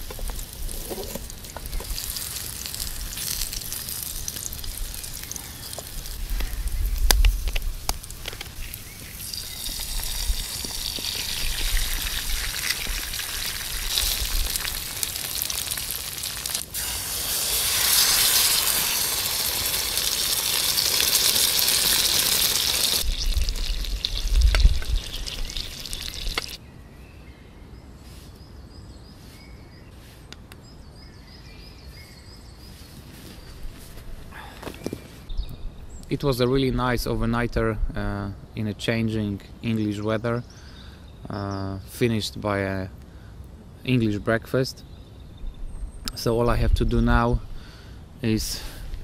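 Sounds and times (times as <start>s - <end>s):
food sizzling in a pan: 1.3s - 6.3s, 8.6s - 26.6s.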